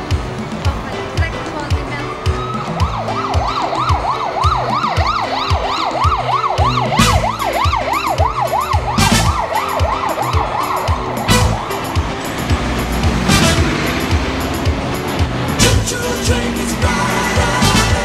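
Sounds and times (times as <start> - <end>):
background music with beat: 0.0 - 18.0
siren warbling fast: 2.3 - 11.8.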